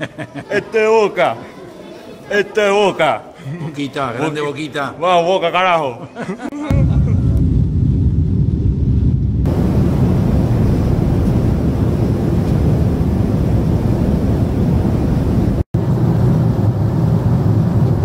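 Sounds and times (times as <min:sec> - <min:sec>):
jet engine cabin rush: 0:09.4 - 0:18.0.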